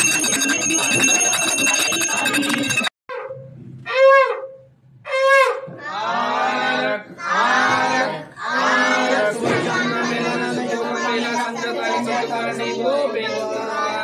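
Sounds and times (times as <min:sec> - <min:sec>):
group of voices chanting: 0:05.8 - 0:14.0.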